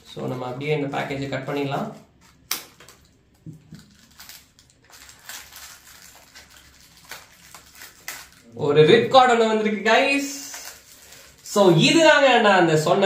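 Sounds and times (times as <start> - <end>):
packaging rustling: 0.1 - 9.2, 9.8 - 11.8
light packaging clicks: 2.2 - 8.4.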